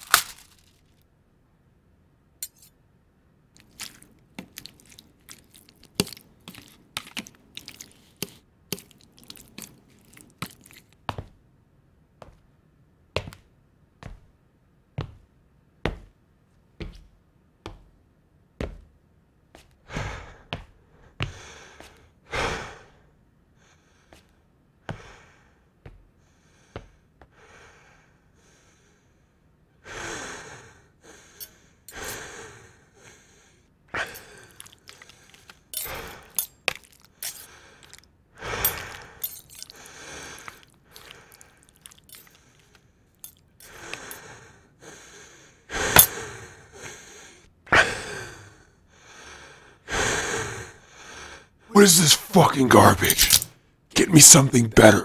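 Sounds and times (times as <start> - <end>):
person chewing: 0.0 - 0.7, 3.6 - 11.0, 34.0 - 44.2
breathy gasps: 29.8 - 36.5, 37.1 - 42.8, 43.6 - 52.1.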